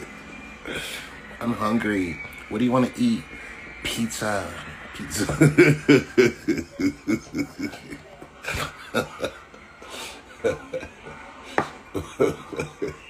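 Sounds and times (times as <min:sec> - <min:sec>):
man laughing hard: 0:05.3 - 0:09.4, 0:12.0 - 0:13.0.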